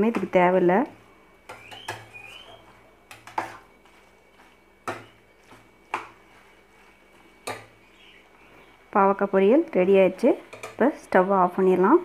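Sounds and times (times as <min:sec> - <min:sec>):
spoon knocking on pan: 0:01.5 - 0:02.2, 0:04.8 - 0:05.2, 0:05.9 - 0:06.2, 0:07.4 - 0:07.8.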